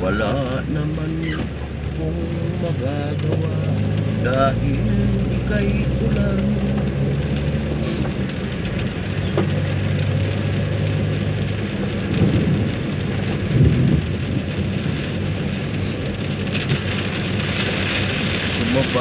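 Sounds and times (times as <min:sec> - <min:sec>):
car engine low hum: 0:00.0 - 0:19.0
heavy rain on car roof: 0:00.0 - 0:19.0.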